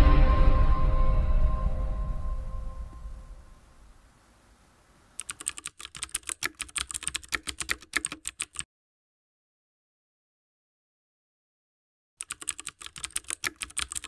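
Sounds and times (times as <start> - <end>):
faint music: 0.0 - 5.2
computer keyboard typing clicks: 5.2 - 8.6, 12.2 - 14.0.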